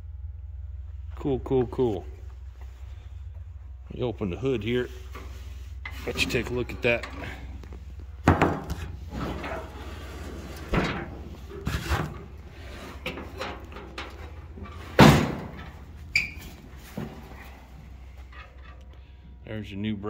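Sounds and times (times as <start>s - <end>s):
metal clunks of truck hood opening: 8.2s - 16.4s.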